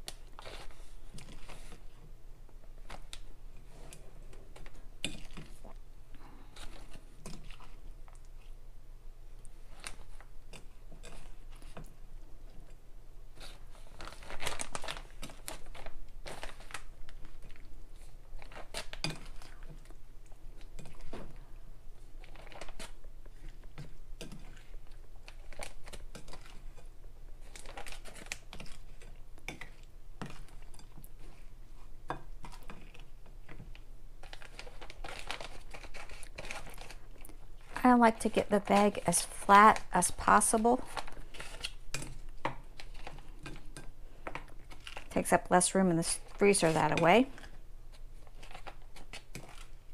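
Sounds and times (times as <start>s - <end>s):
plastic bag crinkling: 13.4s - 20.0s, 22.2s - 23.7s, 24.5s - 26.7s, 27.4s - 29.1s, 34.2s - 43.7s, 44.3s - 49.9s.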